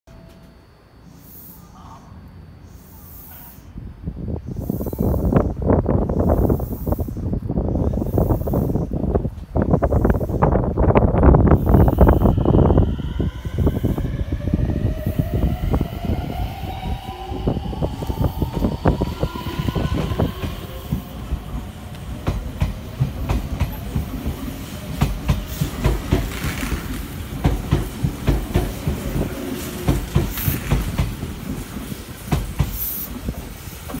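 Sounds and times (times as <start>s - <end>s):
electric train motors whining: 4.1s - 34.0s
train wheels clicking over rail joints: 19.3s - 34.0s.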